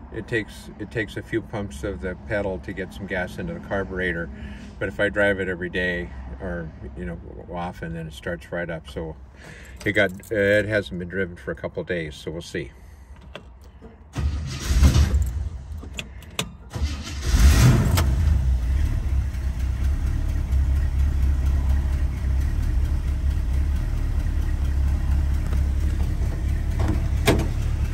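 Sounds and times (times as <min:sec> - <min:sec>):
car engine starting and idling: 0:12.8 - 0:27.9.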